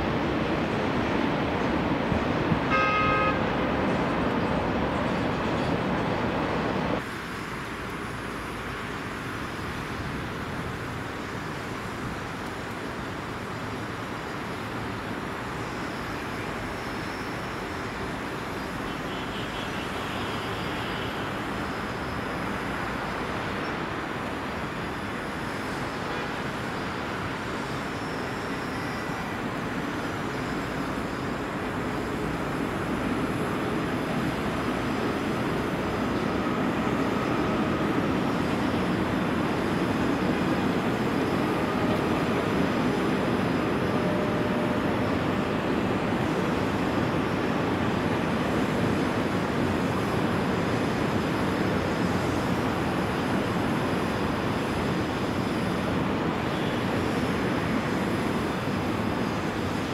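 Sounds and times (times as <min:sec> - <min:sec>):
city traffic noise: 0:00.0 - 0:59.9
distant freight train rumble: 0:20.8 - 0:59.9.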